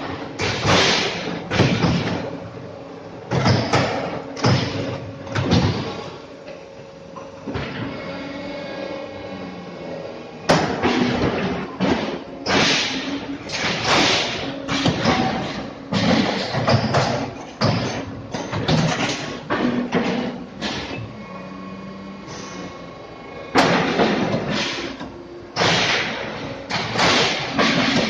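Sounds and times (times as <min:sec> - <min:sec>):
press thudding and clanking: 0:00.0 - 0:02.5, 0:03.2 - 0:06.1, 0:10.5 - 0:21.0, 0:23.5 - 0:28.0
steady hum: 0:00.0 - 0:28.0.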